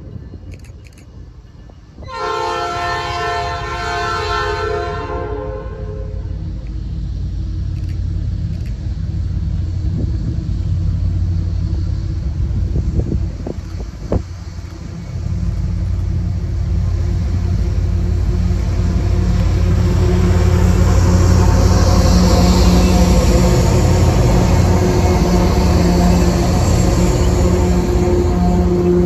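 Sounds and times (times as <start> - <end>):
train rumbling past: 0.0 - 29.0
train air horn blast: 2.1 - 6.3, 18.5 - 29.0.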